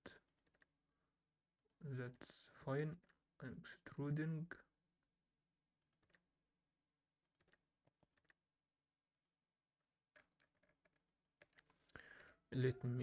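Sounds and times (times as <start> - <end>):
keyboard and mouse clicks: 0.2 - 0.7, 5.8 - 6.2, 7.2 - 8.4, 10.2 - 11.8.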